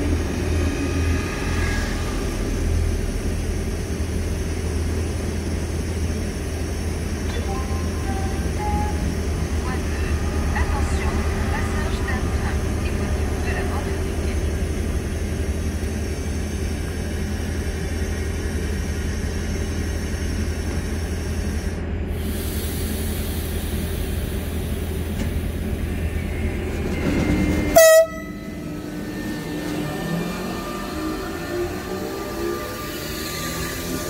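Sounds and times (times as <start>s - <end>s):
train equipment humming: 0.0s - 34.0s
train horn blast: 27.7s - 28.8s.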